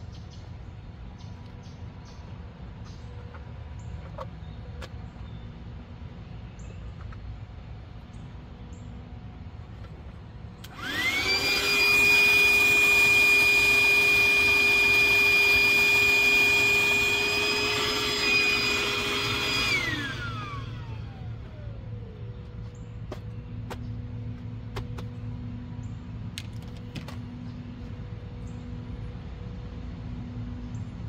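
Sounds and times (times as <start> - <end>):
electric air pump whining: 10.6 - 25.5.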